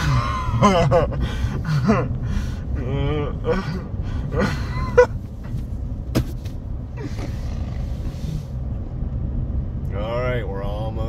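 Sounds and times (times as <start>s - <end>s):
road noise inside moving car: 0.0s - 11.0s
man making slurred vocal sounds: 1.8s - 4.6s.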